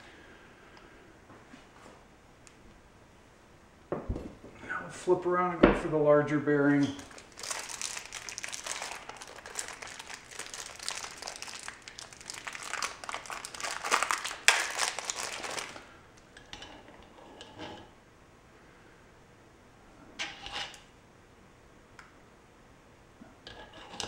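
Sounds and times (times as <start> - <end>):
plastic packaging crinkling: 6.9 - 16.0.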